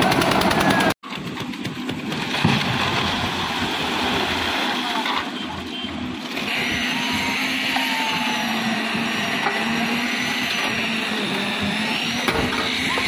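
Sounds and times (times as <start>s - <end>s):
diesel concrete mixer running: 0.0s - 13.0s
concrete churning in drum: 6.4s - 13.0s.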